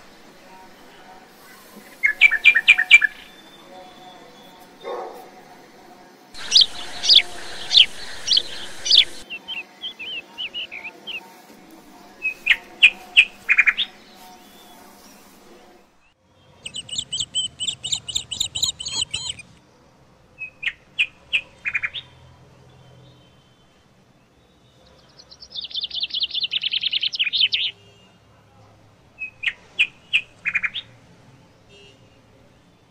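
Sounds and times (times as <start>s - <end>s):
birds chirping: 6.4s - 11.3s, 16.6s - 19.6s.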